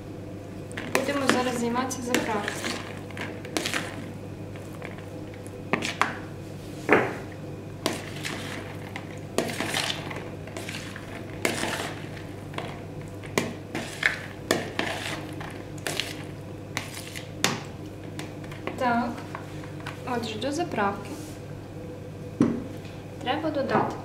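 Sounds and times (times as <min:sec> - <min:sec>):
spoon scraping plastic bowl: 0:13.7 - 0:16.2.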